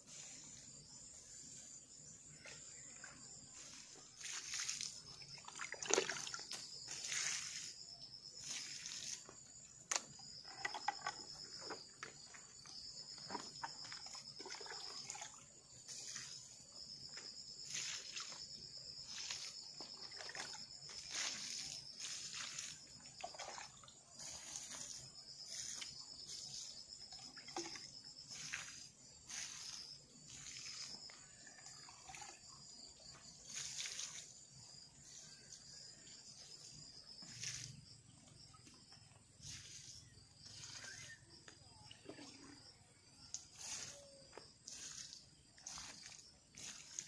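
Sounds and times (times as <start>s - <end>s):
insects trilling: 0.0s - 47.0s
water splashing in plastic bucket: 4.2s - 6.6s, 13.2s - 15.4s, 19.9s - 21.7s, 22.3s - 23.9s, 27.2s - 28.6s.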